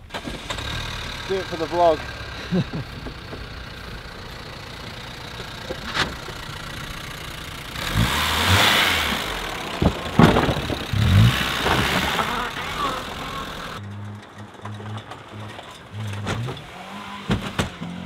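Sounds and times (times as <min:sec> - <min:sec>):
car engine revving: 0:00.0 - 0:18.0
tyres crunching on gravel: 0:00.1 - 0:18.0
sharp knocks: 0:09.8 - 0:12.5.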